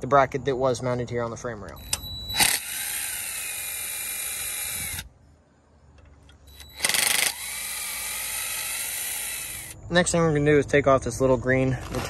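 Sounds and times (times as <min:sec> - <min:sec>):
cordless power driver whining: 0:01.8 - 0:05.1, 0:06.4 - 0:09.8.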